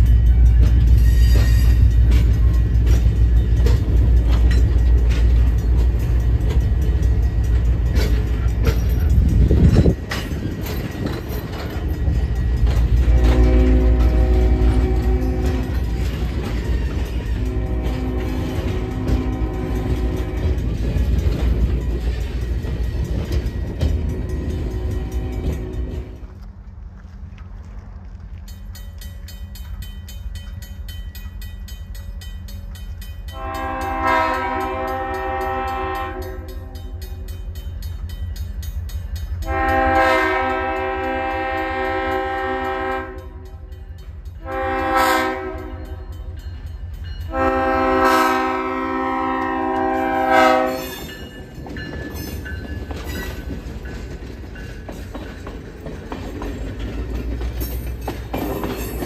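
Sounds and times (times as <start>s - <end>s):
crossing bell ringing: 0.0s - 26.4s, 28.4s - 59.0s
passenger coaches rumbling past: 0.0s - 59.0s
train rumbling: 0.0s - 59.0s
diesel locomotive horn: 12.9s - 20.9s, 24.2s - 26.3s, 33.3s - 37.0s, 39.4s - 43.7s, 44.4s - 46.2s, 47.2s - 51.1s.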